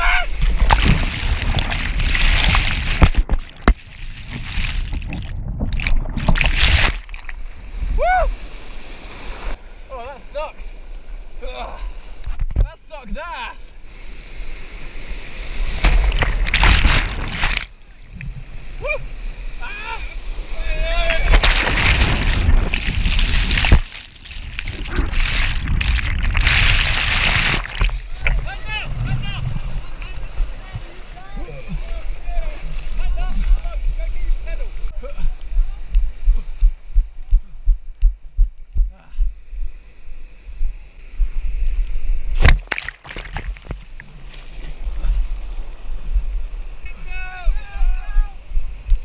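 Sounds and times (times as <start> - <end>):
white water rushing and splashing: 0.0 - 10.7, 14.4 - 35.0.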